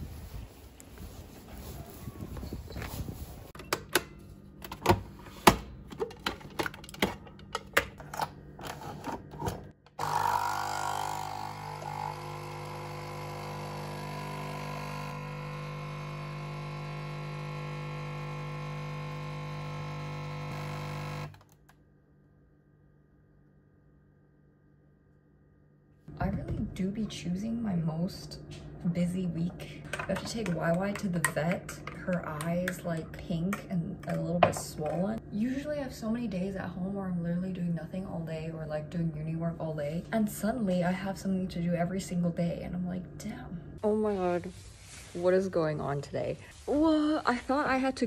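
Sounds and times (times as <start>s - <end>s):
espresso machine pump humming: 10.0s - 21.4s.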